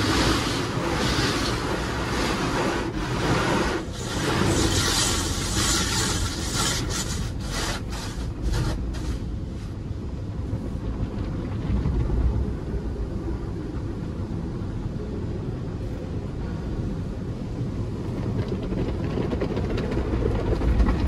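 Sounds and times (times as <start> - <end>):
cloth brushes rubbing car body: 0.0 - 9.8
water spray hissing on windshield: 0.0 - 10.0
car wash machinery rumble: 0.0 - 21.0.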